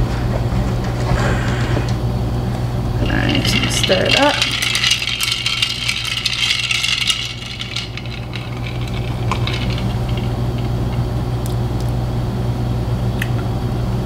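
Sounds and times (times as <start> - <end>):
steady low hum: 0.0 - 14.0
ice cubes clinking in glass: 3.0 - 11.1.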